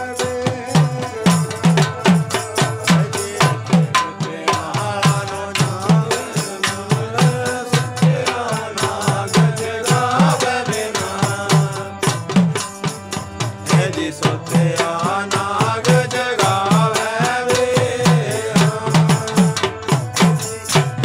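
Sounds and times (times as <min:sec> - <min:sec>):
harmonium: 0:00.0 - 0:21.0
man singing: 0:00.0 - 0:21.0
hand drum beat: 0:17.6 - 0:21.0.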